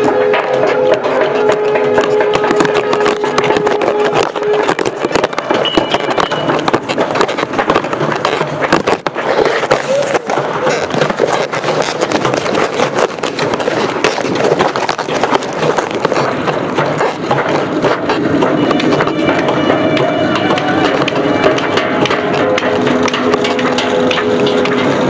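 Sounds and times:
clattering and knocking: 0:00.0 - 0:25.0
people's voices: 0:09.7 - 0:11.0.

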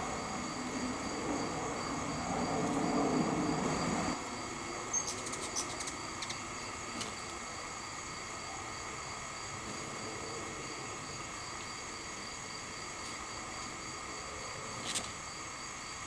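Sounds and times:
insects trilling: 0:00.0 - 0:16.0
hummingbird chips: 0:04.9 - 0:06.4.

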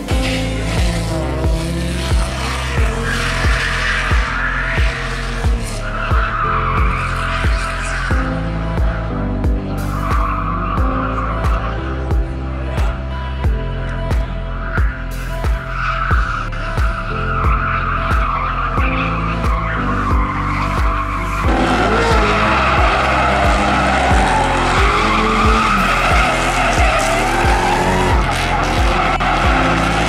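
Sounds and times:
car engine revving: 0:00.0 - 0:30.0
music with a steady beat: 0:00.0 - 0:30.0
tyres squealing: 0:17.3 - 0:30.0.

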